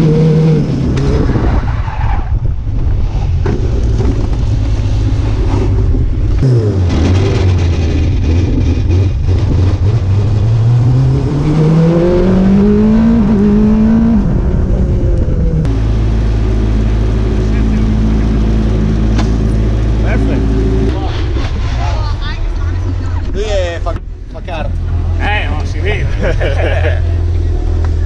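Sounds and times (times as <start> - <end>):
race car engine revving: 3.4 - 23.7.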